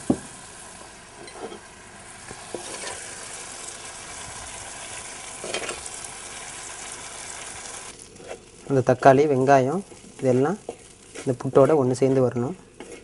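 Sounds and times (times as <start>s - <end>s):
food sizzling in oil: 0.0s - 13.0s
wooden spatula scraping clay pot: 9.8s - 13.0s.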